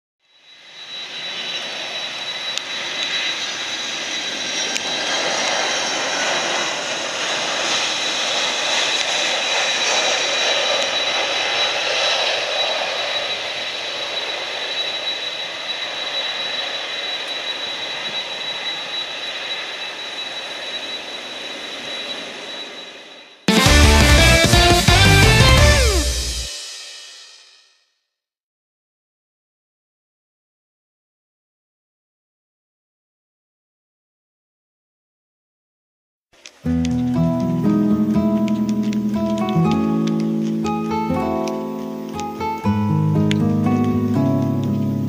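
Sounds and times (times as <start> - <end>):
thin high whine: 0.2 - 27.8, 36.6 - 45.0
distant jet engines: 0.3 - 26.9, 36.4 - 45.0.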